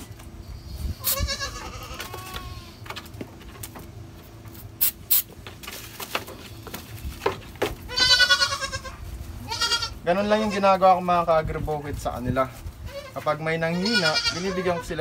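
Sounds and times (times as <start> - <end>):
goat kid bleating: 1.0 - 2.8, 7.8 - 11.0, 12.8 - 15.0.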